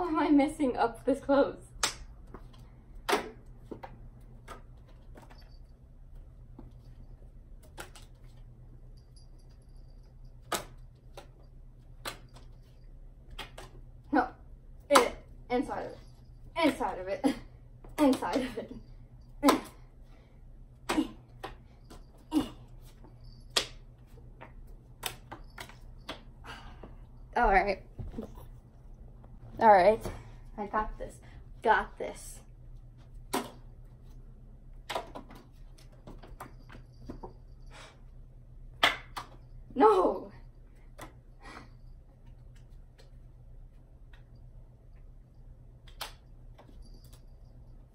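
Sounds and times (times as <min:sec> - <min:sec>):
playing cards clicking and snapping: 0:07.6 - 0:08.2, 0:10.4 - 0:11.4, 0:12.0 - 0:12.6, 0:13.3 - 0:13.8, 0:23.5 - 0:23.8, 0:24.4 - 0:26.3, 0:45.8 - 0:46.7.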